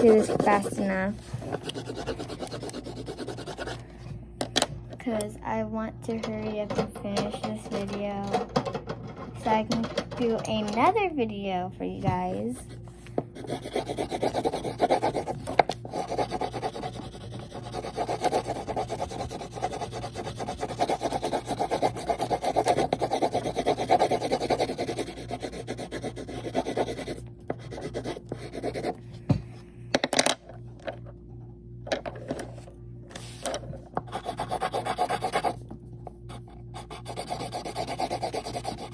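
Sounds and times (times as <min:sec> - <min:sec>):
pencil scribbling on paper: 0:00.0 - 0:03.8, 0:13.4 - 0:29.0, 0:34.1 - 0:35.6, 0:36.3 - 0:38.9.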